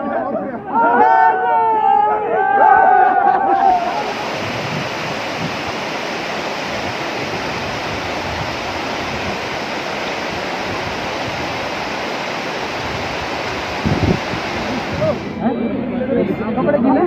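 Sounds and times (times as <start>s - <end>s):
rushing flood water: 3.0s - 15.8s.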